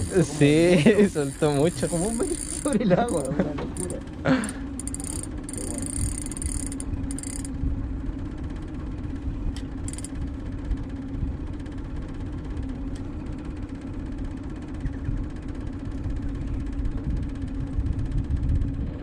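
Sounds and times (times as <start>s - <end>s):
short high-pitched buzzes: 0.0s - 3.9s, 4.8s - 7.5s
outboard motor running: 0.0s - 19.0s.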